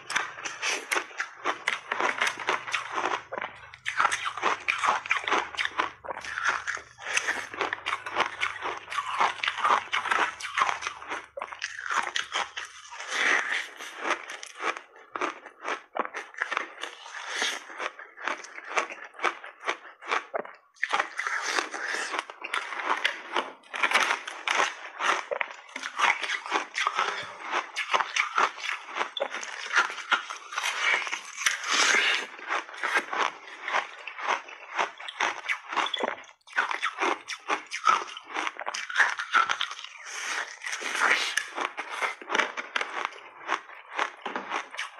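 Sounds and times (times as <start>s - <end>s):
ice being chewed: 0.0s - 44.9s.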